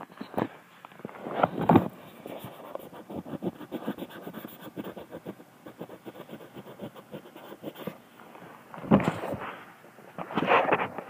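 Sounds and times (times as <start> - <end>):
fingers scratching on phone: 1.5 - 8.0.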